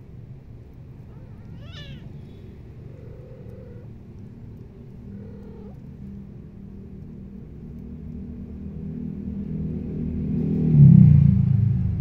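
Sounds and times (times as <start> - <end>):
steady low rumble: 0.0 - 12.0
cat meowing: 1.0 - 3.9, 5.1 - 5.9.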